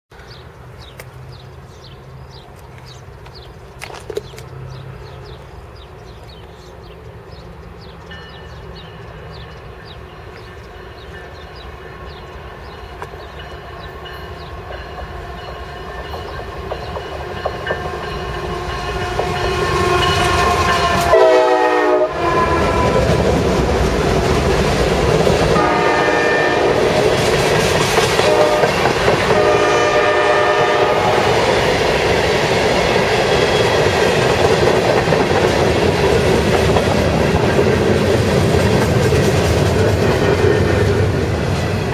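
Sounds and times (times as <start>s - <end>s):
train wheels rolling on rail: 0.2s - 41.9s
train horn: 17.6s - 23.3s, 25.5s - 27.1s, 28.2s - 31.4s.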